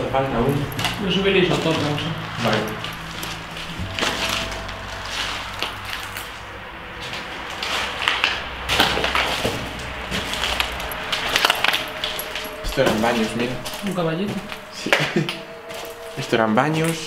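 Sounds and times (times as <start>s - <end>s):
footsteps crunching over debris: 7.0s - 17.0s.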